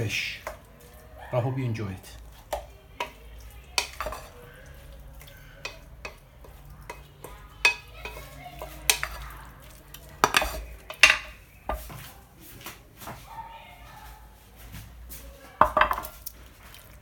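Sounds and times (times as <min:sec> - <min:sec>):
salad rustling: 0:00.1 - 0:17.0
spoon knocking on glass bowl: 0:10.2 - 0:11.8, 0:15.6 - 0:16.1.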